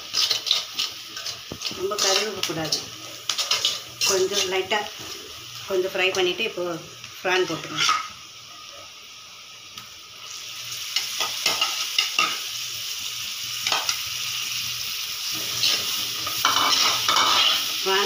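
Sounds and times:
metal spoon scraping pan: 0.0s - 5.1s, 7.6s - 8.1s, 15.4s - 17.7s
prawns sizzling in hot oil: 0.0s - 18.0s.

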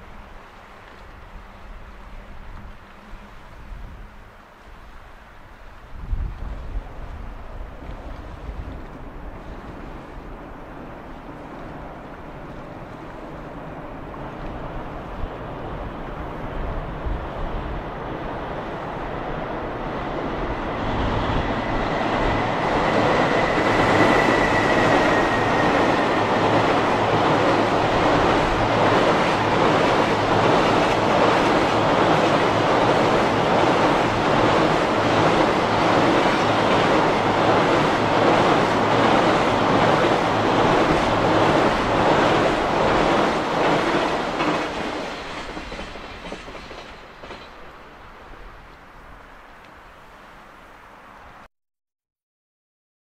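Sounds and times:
train rumbling over bridge: 0.0s - 51.4s.

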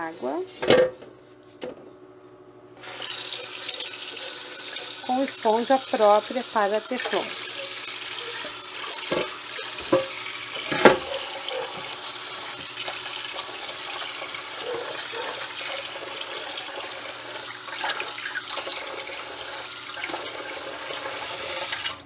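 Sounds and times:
tap water splashing into bowl: 8.9s - 11.1s.

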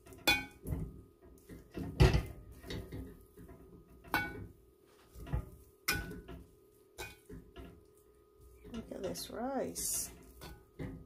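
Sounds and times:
metal spoon scraping a pot: 8.6s - 11.0s.

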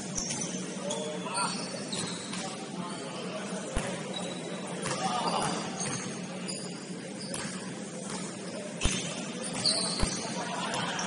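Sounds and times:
diffuse court noise: 0.0s - 11.0s
brief high squeaks: 8.8s - 10.2s.

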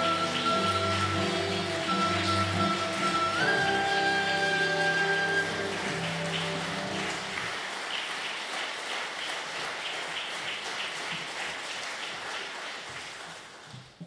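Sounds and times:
held music chord: 0.0s - 7.4s
audience applause: 0.0s - 13.8s.

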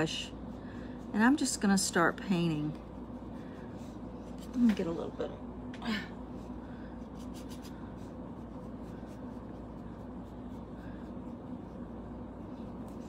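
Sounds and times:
low background hum: 0.0s - 13.0s
paintbrush strokes: 7.0s - 13.0s.

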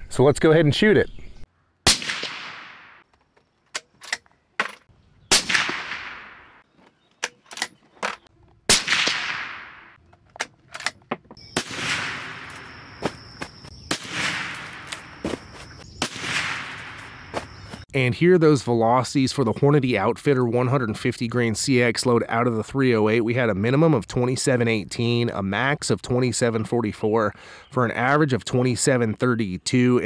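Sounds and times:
suppressed rifle shots: 1.9s - 3.0s, 5.3s - 6.6s, 8.7s - 10.0s, 11.5s - 12.8s, 13.9s - 15.1s, 16.0s - 17.0s.

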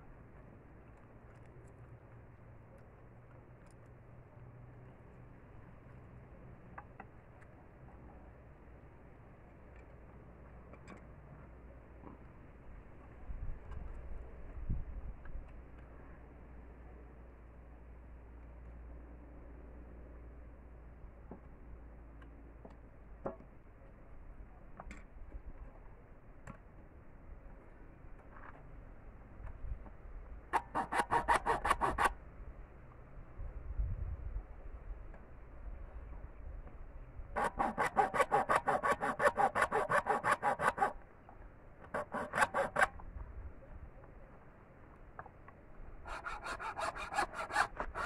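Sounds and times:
hacksaw cutting bamboo: 30.5s - 32.2s, 37.4s - 41.0s, 41.8s - 43.0s, 46.1s - 48.0s.

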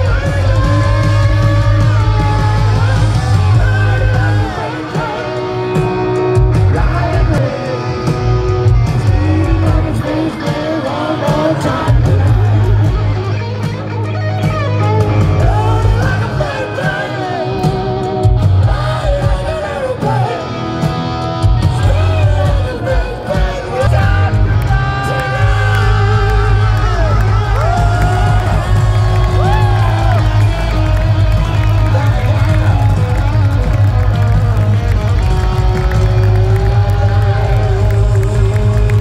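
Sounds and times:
person singing: 0.0s - 13.8s, 15.0s - 39.0s
electric guitar bending notes: 0.0s - 39.0s
live hard rock band: 0.0s - 39.0s.

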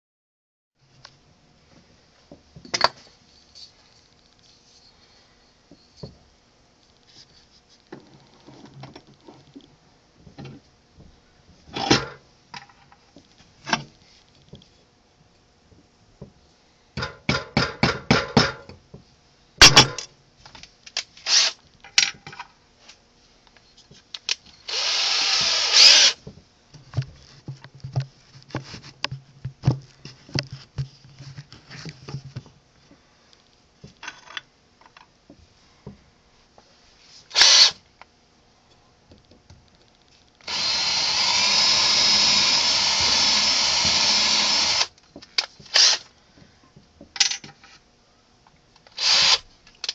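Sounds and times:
power drill drilling: 21.3s - 21.6s, 24.7s - 26.2s, 37.3s - 37.8s, 40.4s - 44.9s, 45.7s - 46.0s, 49.0s - 49.4s.

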